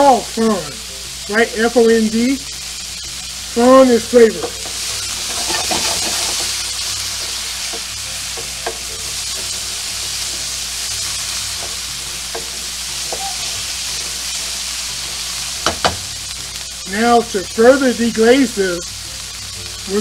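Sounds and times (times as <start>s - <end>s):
vegetables sizzling in a skillet: 0.0s - 20.0s
wooden spoon scraping a pan: 4.4s - 6.6s.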